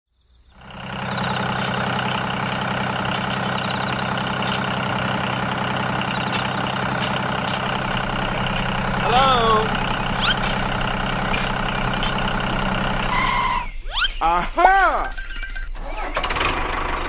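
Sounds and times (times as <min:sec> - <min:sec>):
tractor engine idling: 0:00.6 - 0:13.7.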